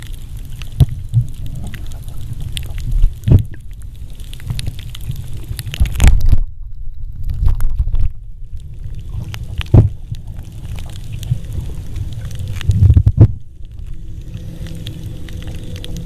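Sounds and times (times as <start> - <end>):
faint crackles: 0.0 - 16.0
underwater rumble of moving water: 0.0 - 16.0
underwater thumps: 9.6 - 10.0, 12.7 - 13.4.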